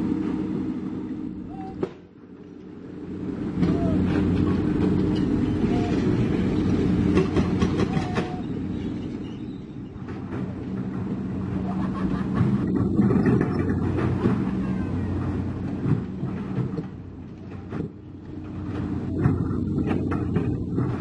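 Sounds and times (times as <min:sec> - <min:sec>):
excavator diesel engine running: 0:00.0 - 0:21.0
knocks and clatter: 0:03.6 - 0:09.2, 0:10.0 - 0:11.3, 0:12.2 - 0:21.0.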